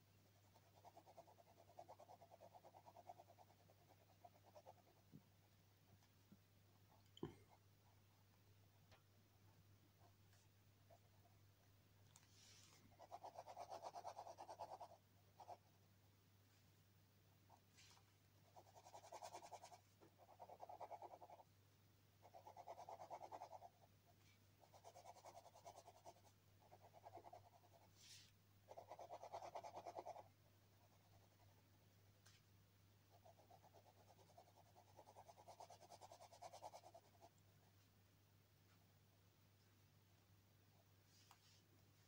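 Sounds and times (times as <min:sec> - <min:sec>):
pen scribbling on paper: 0:13.0 - 0:15.6, 0:18.6 - 0:21.4, 0:28.7 - 0:30.2.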